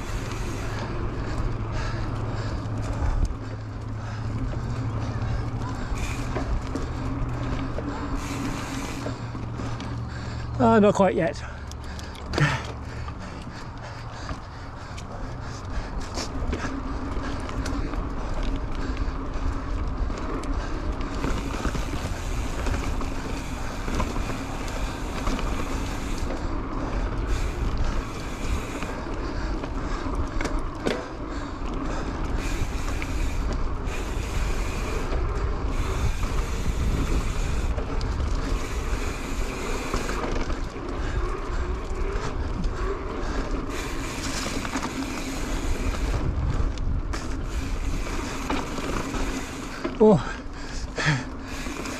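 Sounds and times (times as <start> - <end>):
tyres rolling on dirt: 0.0 - 51.9
wind buffeting microphone: 11.6 - 49.8.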